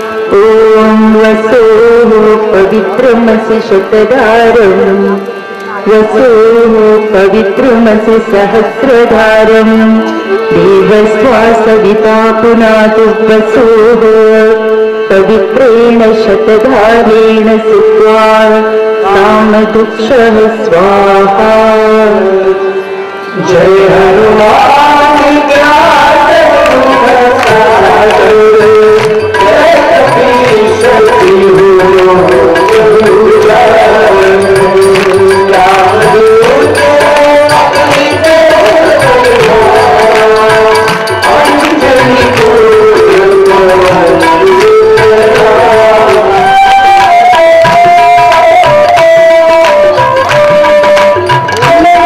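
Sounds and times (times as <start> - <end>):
tabla drumming: 0.0 - 22.6, 23.4 - 52.0
sustained gliding melody: 0.0 - 52.0.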